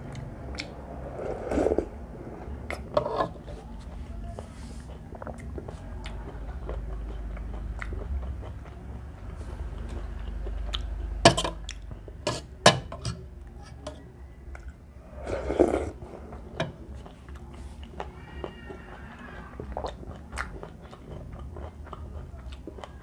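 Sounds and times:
person chewing: 0.0s - 12.3s, 14.6s - 23.0s
slurp: 0.6s - 3.4s, 15.0s - 16.4s.

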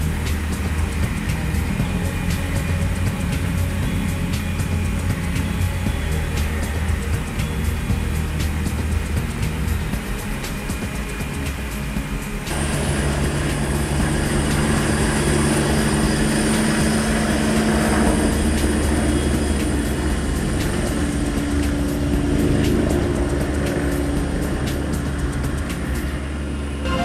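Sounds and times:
helicopter turbine whine and rotor: 0.0s - 27.0s.

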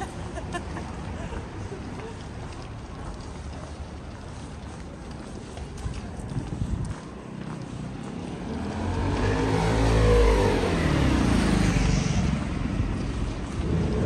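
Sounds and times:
vehicle engine passing by: 7.7s - 14.0s.

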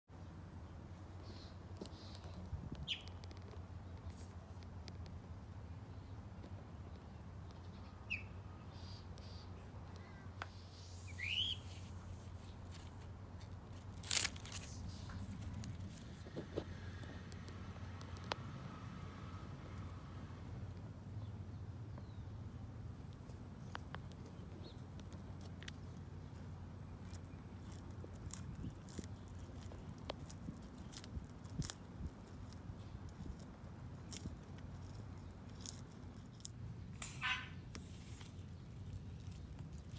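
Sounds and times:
low steady hum: 0.2s - 39.9s
bird chirps: 1.2s - 3.2s, 6.9s - 12.6s, 37.0s - 38.2s
tortoise crunching leaves: 10.5s - 39.9s
scissors snipping lettuce stalk: 12.7s - 16.0s, 27.0s - 39.9s.

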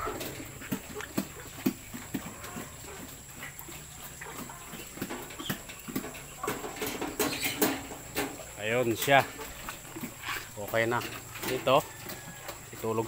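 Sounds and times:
pig grunts: 0.0s - 5.7s, 8.4s - 11.4s.

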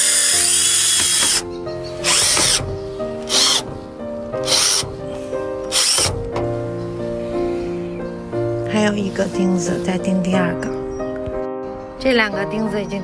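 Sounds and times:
electric drill driving screws: 0.0s - 1.4s, 2.0s - 2.6s, 3.3s - 3.6s, 4.4s - 4.8s, 5.7s - 6.1s.

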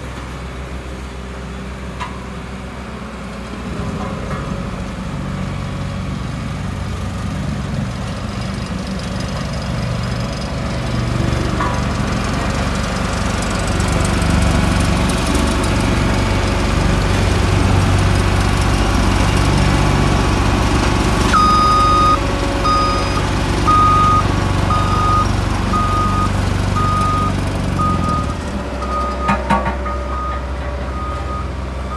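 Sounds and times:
roller diesel engine running: 0.0s - 31.9s
reversing alarm beeps: 21.3s - 30.4s.

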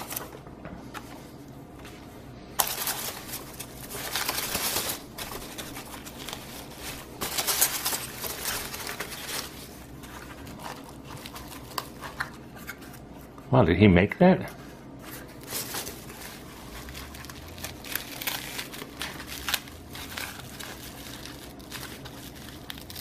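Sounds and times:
packing peanuts rustling: 2.6s - 12.4s, 15.0s - 23.0s.

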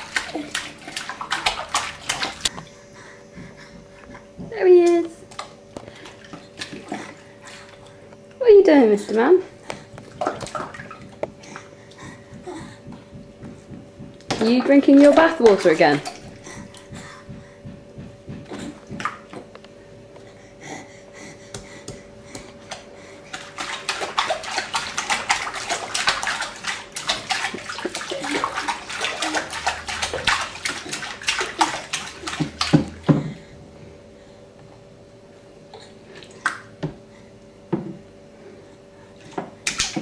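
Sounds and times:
baby splashing in bathwater: 0.0s - 2.7s, 3.3s - 17.4s, 18.4s - 19.5s, 21.5s - 33.5s, 39.2s - 40.0s.

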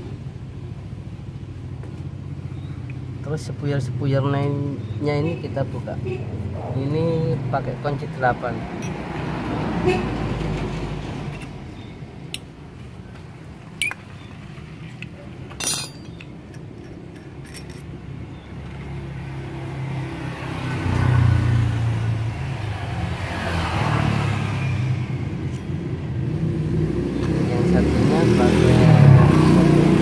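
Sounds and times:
metal clinks of tools: 14.9s - 18.0s.

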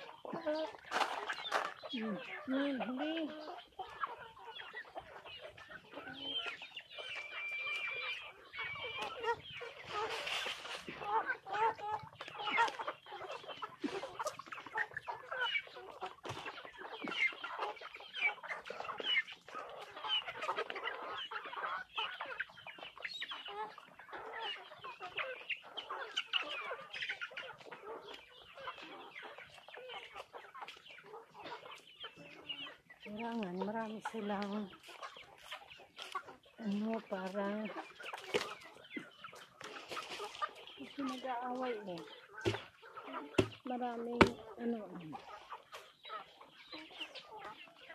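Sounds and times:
chickens clucking: 0.0s - 47.9s.

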